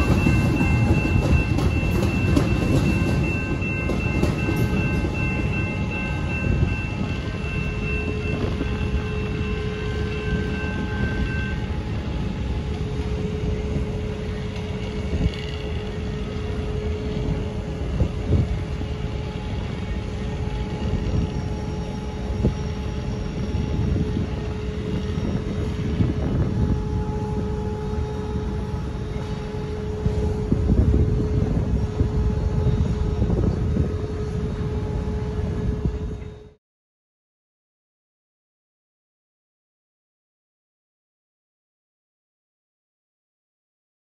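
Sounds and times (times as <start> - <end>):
diesel locomotives rumbling: 0.0 - 36.6.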